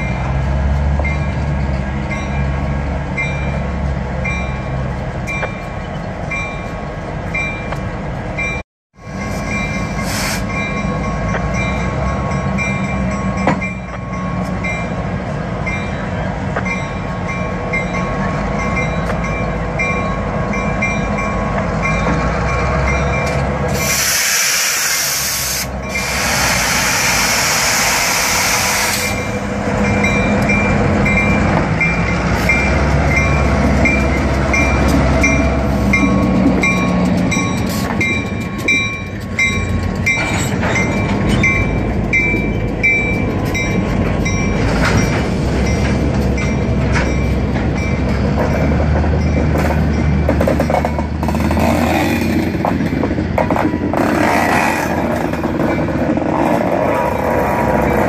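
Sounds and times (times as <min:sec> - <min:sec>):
crossing bell ringing: 0:00.0 - 0:23.8, 0:25.7 - 0:26.3, 0:28.2 - 0:51.7, 0:53.7 - 0:58.0
diesel locomotives passing: 0:00.0 - 0:58.0
train wheels clacking over crossing: 0:08.5 - 0:58.0
loud hiss: 0:23.7 - 0:29.3.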